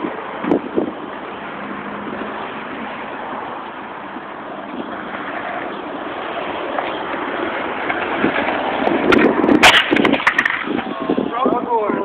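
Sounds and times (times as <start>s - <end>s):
skateboard wheels rolling on asphalt: 0.0s - 12.0s
skateboard clacking on pavement: 4.6s - 11.6s.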